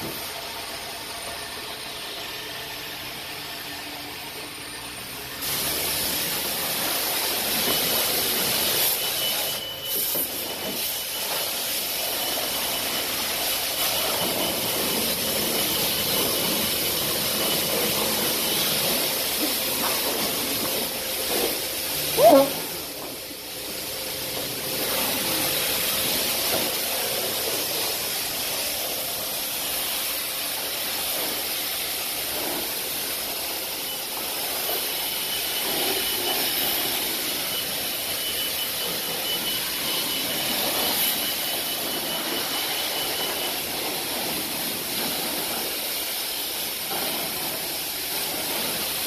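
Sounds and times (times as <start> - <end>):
pressure washer spraying water: 0.0 - 3.8, 5.1 - 49.0
faint high tone: 20.7 - 23.1.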